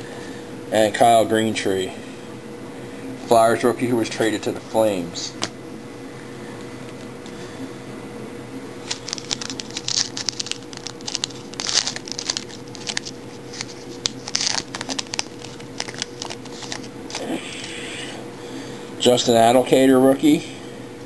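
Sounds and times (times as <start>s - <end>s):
cards and packaging crinkling: 8.8s - 17.3s.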